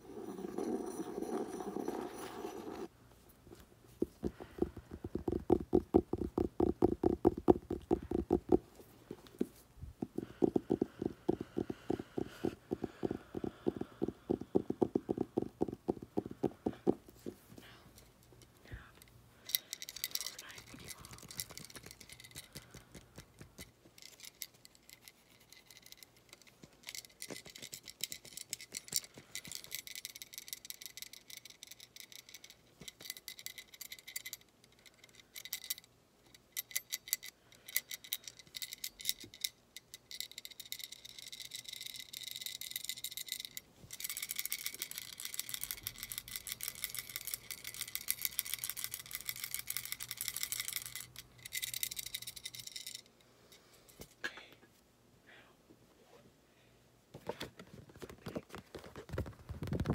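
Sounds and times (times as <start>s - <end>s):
fingers tapping and scratching: 4.0s - 9.4s, 10.0s - 17.4s, 20.0s - 23.7s.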